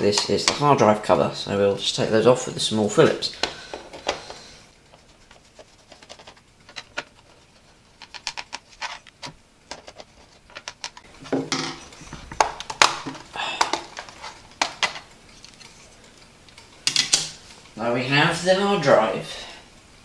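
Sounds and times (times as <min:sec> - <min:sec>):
plastic cover clicking and scraping: 0:03.4 - 0:15.9.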